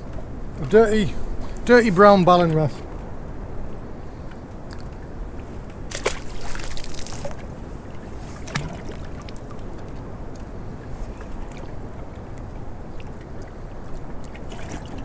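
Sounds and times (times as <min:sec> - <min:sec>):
water lapping against boat hull: 0:00.0 - 0:15.0.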